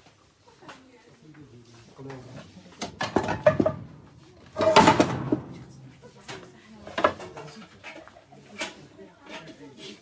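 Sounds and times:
metal pans clattering: 2.8 - 3.9, 4.5 - 9.6.

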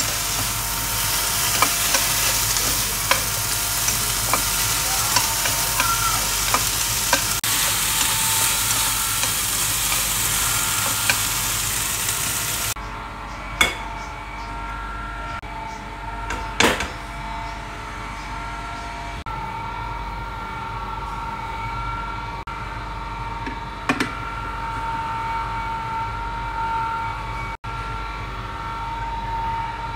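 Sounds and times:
wok knocking: 0.0 - 12.7, 13.6 - 13.9
food sizzling in a wok: 0.0 - 12.8
steady hum: 0.0 - 16.2.

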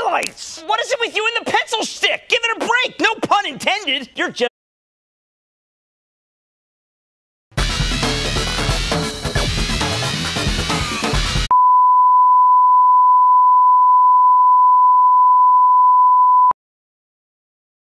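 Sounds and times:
music: 7.6 - 11.5.

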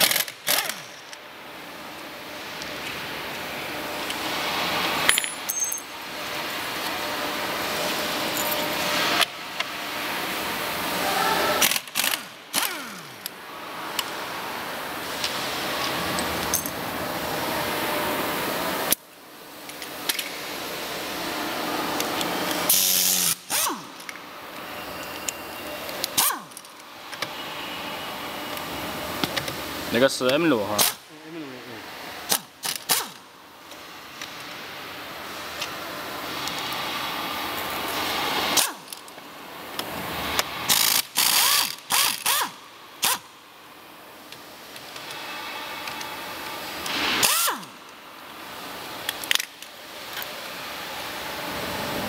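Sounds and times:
pneumatic impact wrench whirring: 0.0 - 1.1, 11.6 - 13.4, 22.4 - 24.2, 26.0 - 26.8, 30.8 - 31.1, 32.3 - 33.2, 38.0 - 39.0, 39.8 - 43.3, 46.8 - 47.8
steady background air hiss: 0.2 - 52.0.

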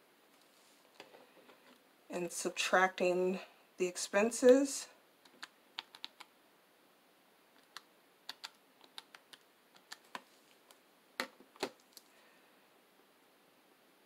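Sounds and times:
calculator keys clicking: 5.3 - 6.3, 7.6 - 10.2.

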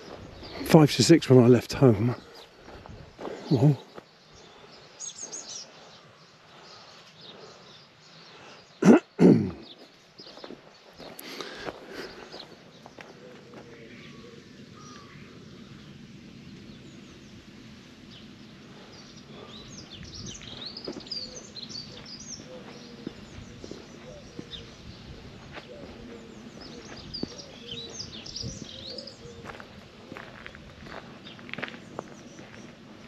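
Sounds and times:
faint footsteps: 0.0 - 0.8, 2.1 - 4.8, 9.8 - 13.9, 19.3 - 33.0
birds chirping and trilling: 0.0 - 33.0
outdoor background noise: 0.0 - 33.0.

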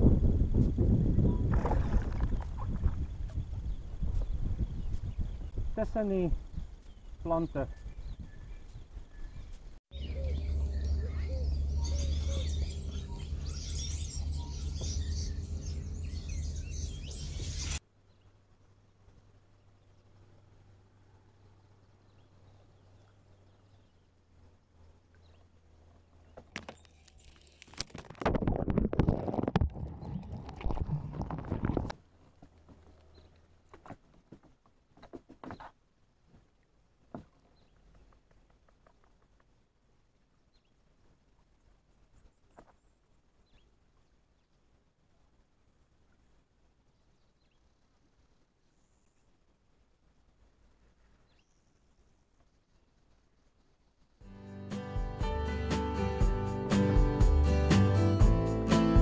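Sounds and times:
birds chirping and calling: 6.3 - 17.8
low hum: 9.9 - 17.8.

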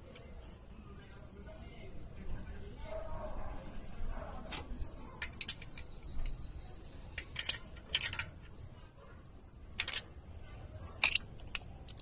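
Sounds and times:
wrench clicking on metal: 5.2 - 5.9, 7.2 - 8.4, 9.8 - 10.1, 11.0 - 12.0.

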